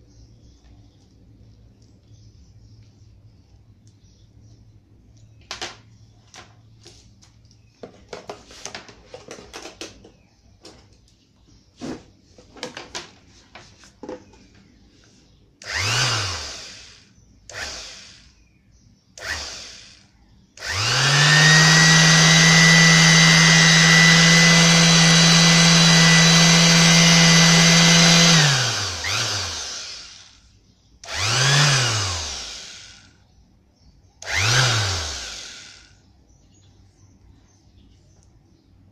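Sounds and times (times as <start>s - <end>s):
orbital sander motor running: 15.6s - 18.4s, 19.2s - 33.2s, 34.2s - 36.0s.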